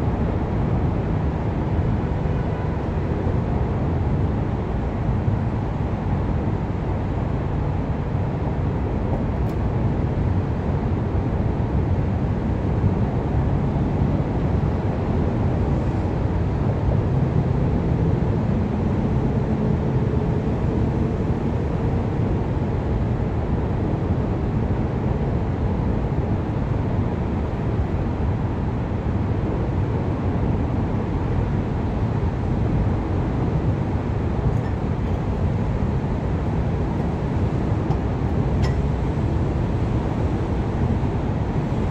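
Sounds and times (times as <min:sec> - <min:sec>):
low outdoor rumble: 0:15.0 - 0:41.9.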